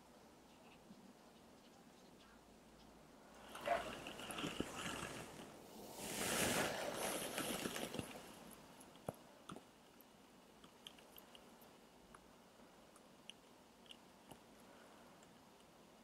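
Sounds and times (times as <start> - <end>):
faint clicks and taps: 8.8 - 12.3.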